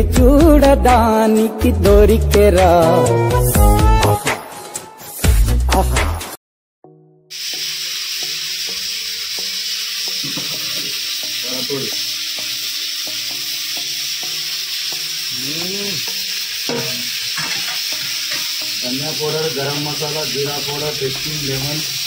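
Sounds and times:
sizzling hiss: 7.3s - 22.0s.

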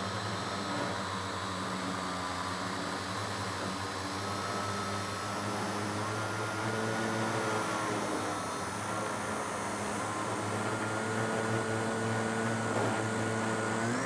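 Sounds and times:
model airplane motor whine: 0.0s - 14.0s.

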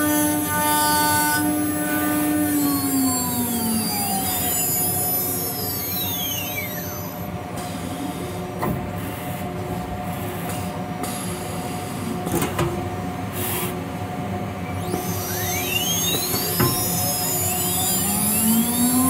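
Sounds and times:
machine hum: 0.0s - 8.6s, 11.4s - 19.0s
spindle whine winding down: 2.4s - 7.3s, 14.7s - 19.0s.

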